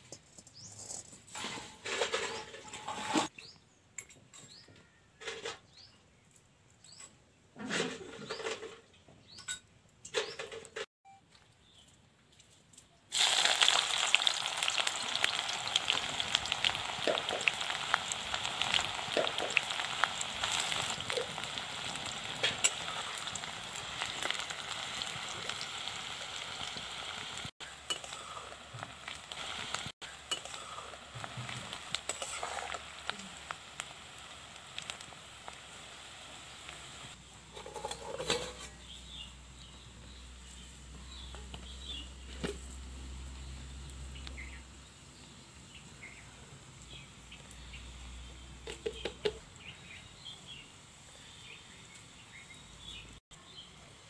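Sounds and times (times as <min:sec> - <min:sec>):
onions sizzling in hot oil: 0:13.1 - 0:37.3.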